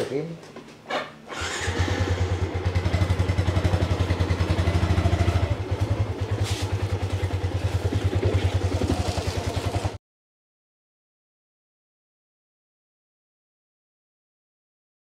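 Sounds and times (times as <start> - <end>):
small motorbike engine running: 1.3 - 10.0.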